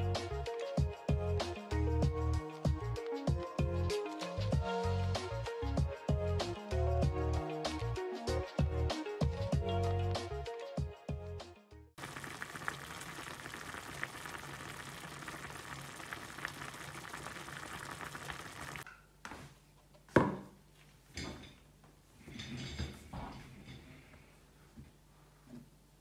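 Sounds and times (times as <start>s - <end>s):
food sizzling on a stovetop: 12.0s - 18.9s.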